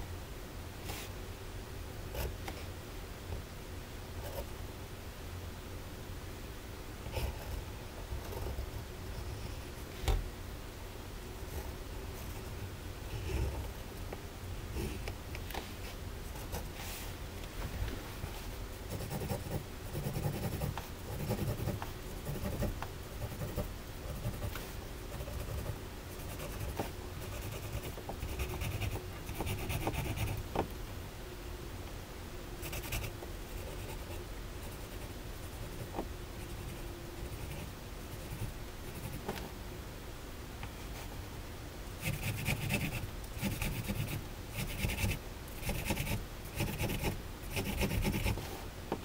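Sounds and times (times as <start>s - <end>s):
marker pen scratching paper: 18.9s - 30.4s, 32.6s - 39.2s, 42.0s - 48.4s.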